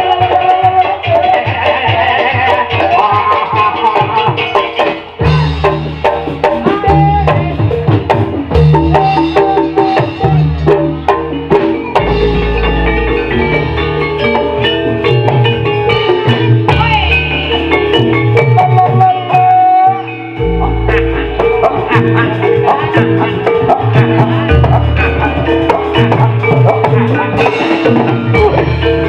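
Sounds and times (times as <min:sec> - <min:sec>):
drums: 0:00.0 - 0:29.0
low bass pattern: 0:05.2 - 0:29.0
wavering melodic line: 0:08.6 - 0:29.0.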